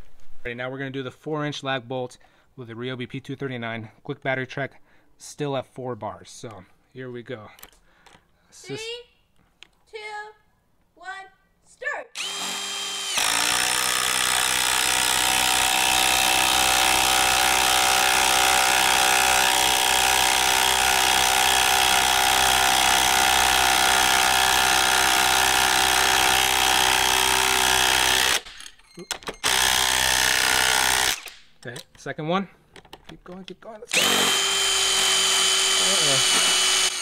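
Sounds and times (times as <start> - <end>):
impact driver hammering bolt into wood: 29.4 - 31.5.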